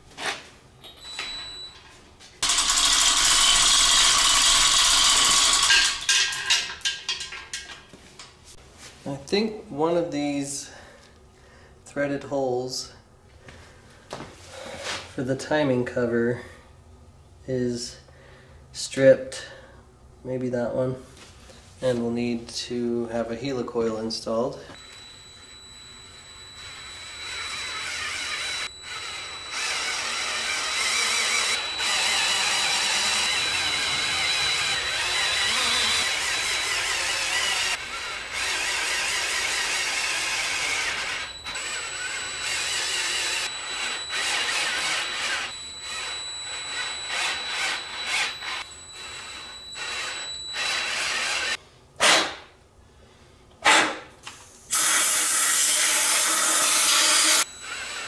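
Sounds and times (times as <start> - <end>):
power drill whining: 2.4 - 6.6, 24.8 - 52.2, 54.7 - 58.0.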